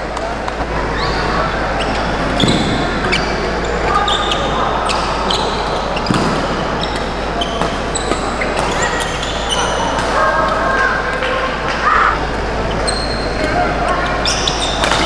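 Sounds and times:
crowd murmur: 0:00.0 - 0:15.0
shoes squeaking on court: 0:00.9 - 0:10.8, 0:12.6 - 0:15.0
racket striking shuttlecock: 0:14.8 - 0:15.0.

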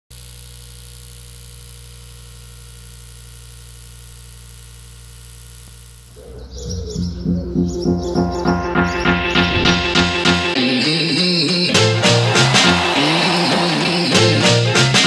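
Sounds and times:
steady low electrical hum: 0:00.2 - 0:08.0.

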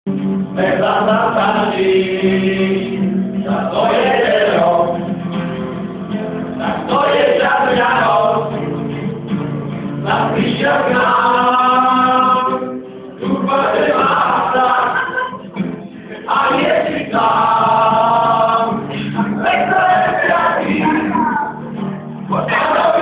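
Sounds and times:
strummed acoustic guitar: 0:00.1 - 0:23.0
men singing a carol in unison: 0:00.6 - 0:05.1, 0:06.6 - 0:08.7, 0:10.0 - 0:15.3, 0:16.0 - 0:21.1, 0:22.3 - 0:23.0.

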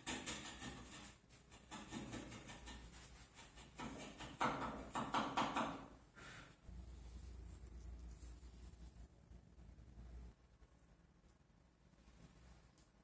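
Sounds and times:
hand tool scraping wood: 0:00.0 - 0:04.5.

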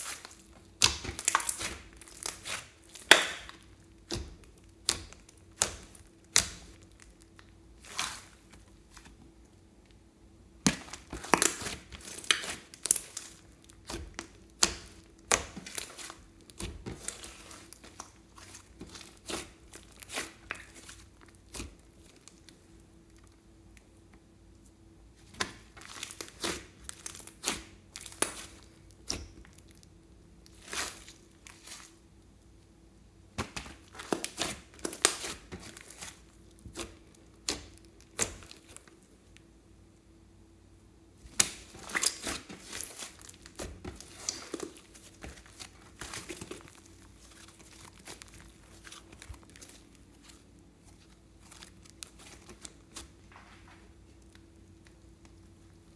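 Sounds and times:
slime clicking and popping: 0:00.1 - 0:07.5.

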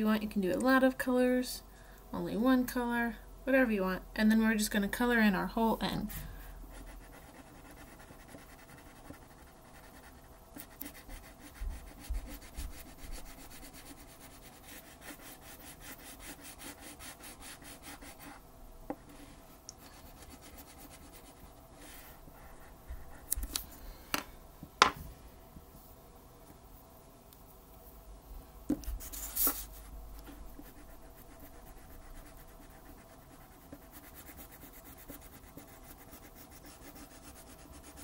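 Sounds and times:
crayon scribbling on paper: 0:06.8 - 0:18.4, 0:19.9 - 0:21.4, 0:29.0 - 0:38.0.

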